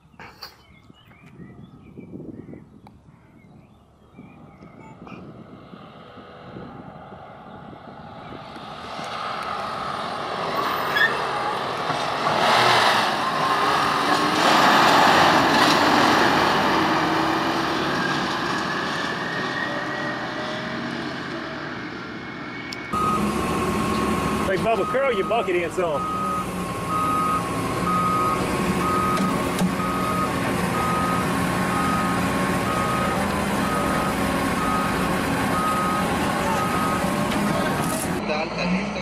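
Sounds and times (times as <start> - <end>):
dump truck driving on gravel: 7.9 - 39.0.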